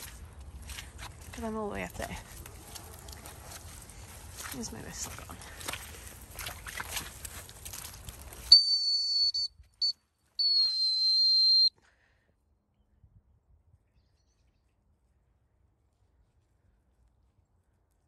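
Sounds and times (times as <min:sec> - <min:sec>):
outdoor rustling: 0:00.0 - 0:12.3
dog whistle blasts: 0:08.5 - 0:11.7.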